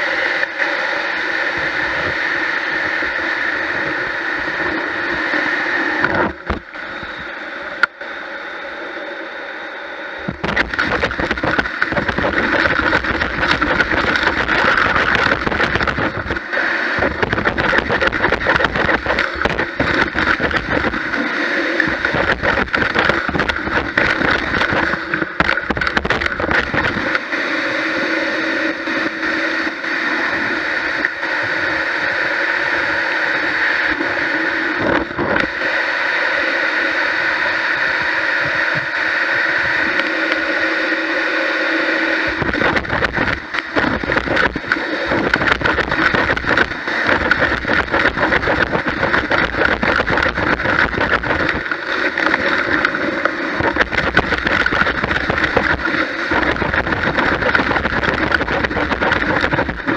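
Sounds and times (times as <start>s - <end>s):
vacuum motor whine: 0.0s - 59.9s
debris crackling up a hose: 10.4s - 27.2s, 42.3s - 59.9s.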